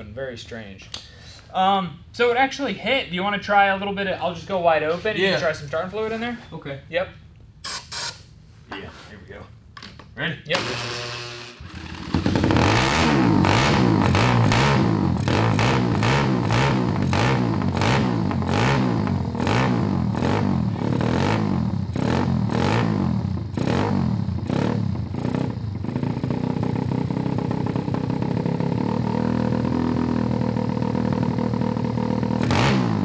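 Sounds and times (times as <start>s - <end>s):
motorbike engine revving and idling: 10.6s - 33.0s.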